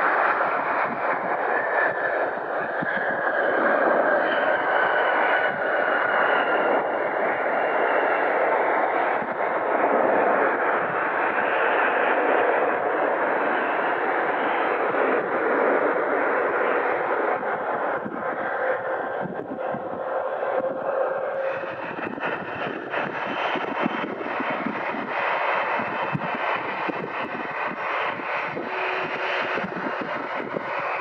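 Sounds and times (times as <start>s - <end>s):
high engine whine: 0.0s - 31.0s
jet engine rush: 0.0s - 31.0s.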